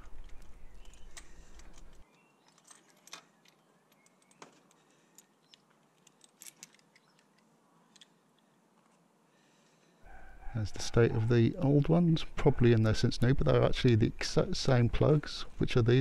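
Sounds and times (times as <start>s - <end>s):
metal tools clicking and clinking: 0.1s - 8.1s.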